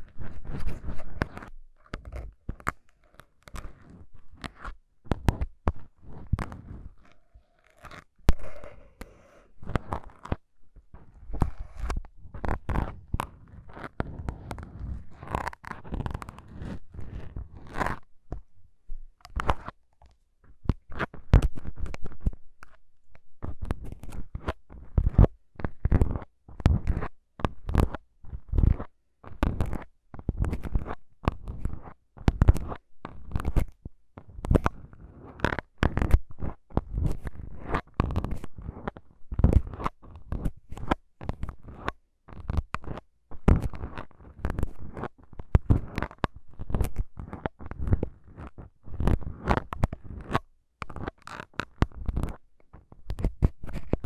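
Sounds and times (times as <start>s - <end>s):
needles scratching foam windscreens: 0.0s - 18.1s, 34.5s - 54.0s.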